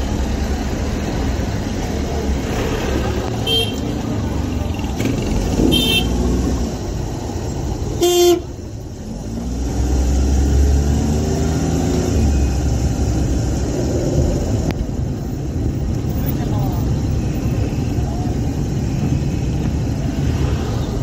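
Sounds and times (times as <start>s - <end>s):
engines running: 0.0s - 21.0s
vehicle horn honk: 3.4s - 3.8s, 5.6s - 6.2s, 8.0s - 8.5s
engine speeding up: 9.1s - 14.8s.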